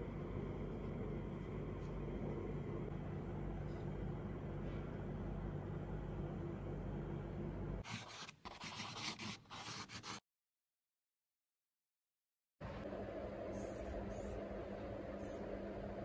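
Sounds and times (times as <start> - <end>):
low hum: 0.0 - 7.8
scratchy scraping and rubbing: 7.8 - 10.2.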